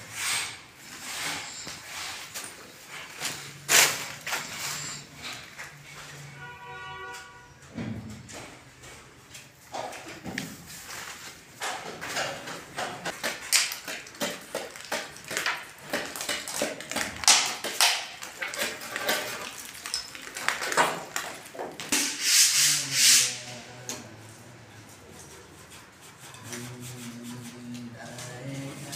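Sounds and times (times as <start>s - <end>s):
scraping and sanding plaster: 0.0s - 5.4s, 13.1s - 20.2s, 21.9s - 23.7s, 24.8s - 28.9s.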